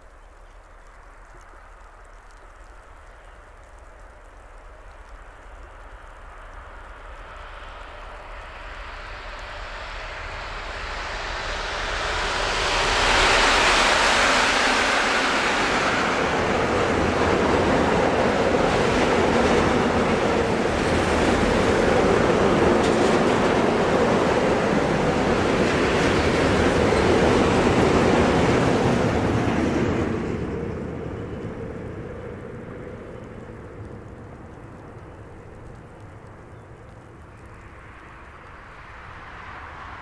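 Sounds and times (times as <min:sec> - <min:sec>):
freight train passing: 0:06.2 - 0:40.0
wagon wheels rumbling on rails: 0:12.1 - 0:38.0.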